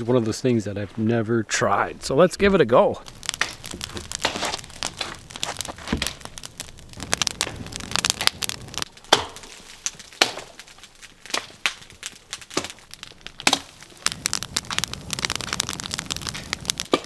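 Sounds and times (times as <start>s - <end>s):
branches rustling and crunching: 0.0s - 17.0s
branches snapping: 3.0s - 17.0s.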